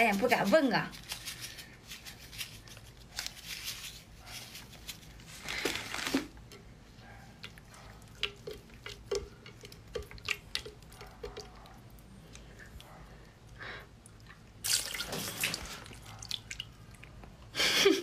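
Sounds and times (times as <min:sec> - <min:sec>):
wet squishing and sticky clicks: 0:07.4 - 0:12.9.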